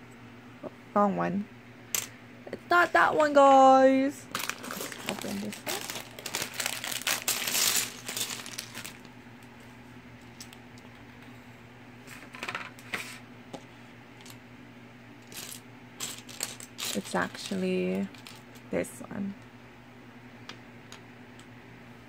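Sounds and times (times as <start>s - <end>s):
plastic bricks clattering: 4.3s - 9.0s, 15.3s - 17.5s.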